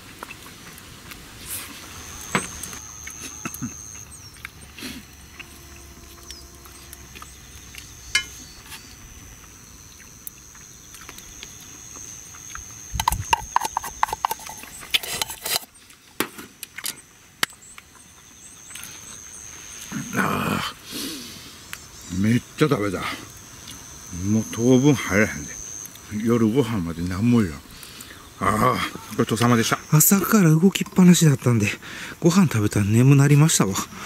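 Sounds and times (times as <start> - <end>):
chewing: 0.0 - 1.8, 2.7 - 7.9
thin steady high tone: 1.4 - 16.2, 16.8 - 34.0
chopsticks scraping skillet: 13.0 - 15.8.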